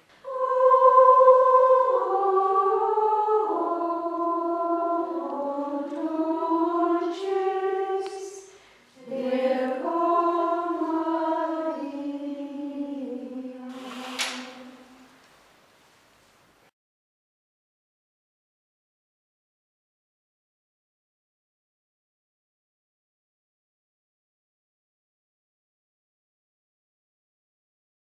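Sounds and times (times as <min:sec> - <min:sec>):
women's choir chanting: 0:00.2 - 0:15.1
brief hisses: 0:13.7 - 0:15.6.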